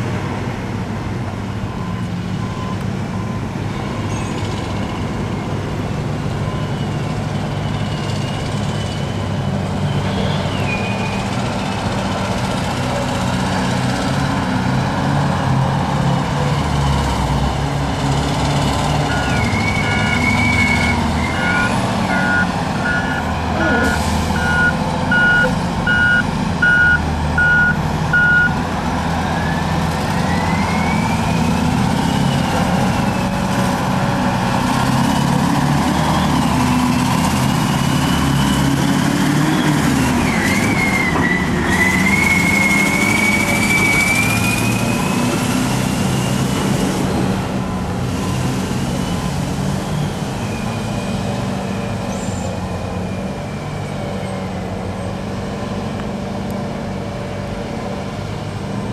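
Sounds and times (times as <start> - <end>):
heavy diesel machines running: 0.0 - 58.9
reversing alarm beeping: 19.0 - 28.6.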